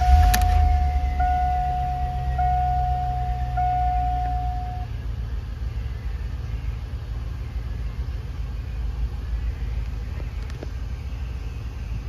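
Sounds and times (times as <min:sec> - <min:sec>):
dashboard warning chime: 0:00.0 - 0:04.9
car engine idling: 0:00.0 - 0:12.0.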